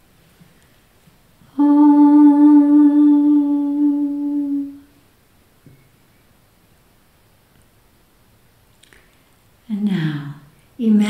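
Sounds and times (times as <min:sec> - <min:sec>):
woman chanting om: 0:01.5 - 0:04.9.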